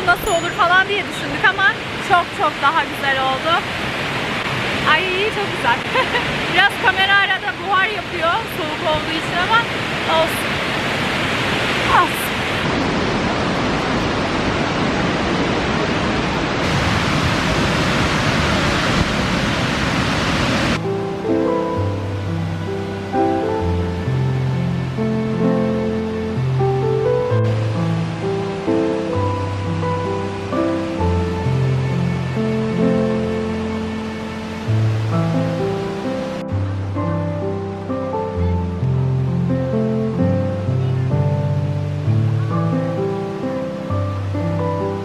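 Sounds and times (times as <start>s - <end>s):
waterfall rushing: 0.0s - 45.0s
background music with held notes: 20.8s - 45.0s.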